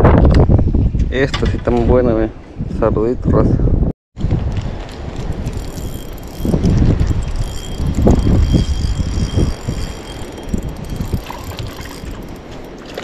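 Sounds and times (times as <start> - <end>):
fishing reel whirring: 5.3 - 13.0.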